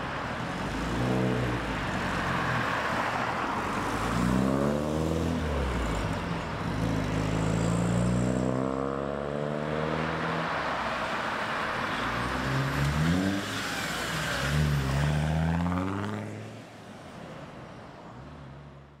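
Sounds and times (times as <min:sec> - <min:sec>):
cars accelerating past: 0:03.7 - 0:16.6.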